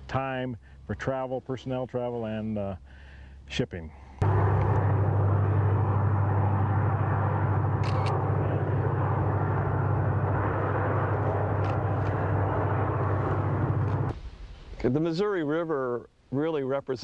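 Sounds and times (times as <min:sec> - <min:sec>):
diesel locomotive engine drone: 0:04.2 - 0:14.1
train rumble: 0:04.2 - 0:14.8.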